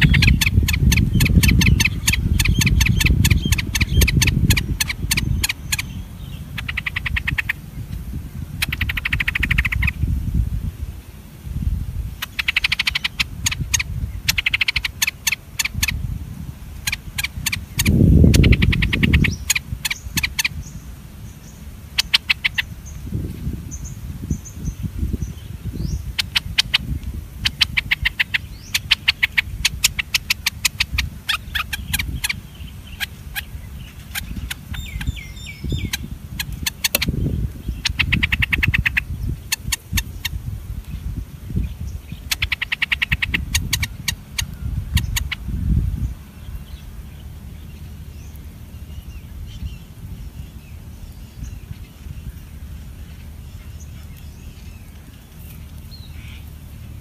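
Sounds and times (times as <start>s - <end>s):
bird chirps: 0.0s - 10.1s, 12.1s - 16.1s, 16.7s - 57.0s
birds chittering: 0.0s - 57.0s
low rumble: 43.2s - 57.0s.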